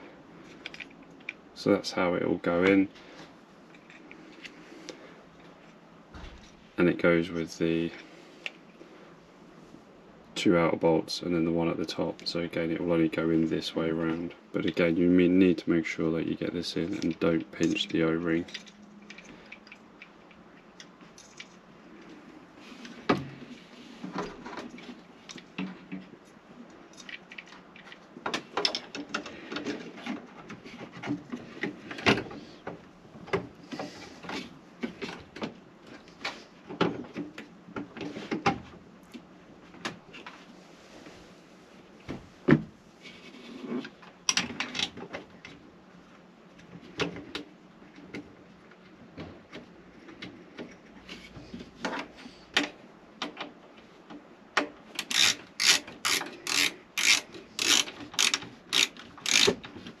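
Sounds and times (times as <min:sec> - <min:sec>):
ratcheting screwdriver clicks: 0:55.0 - 0:59.6.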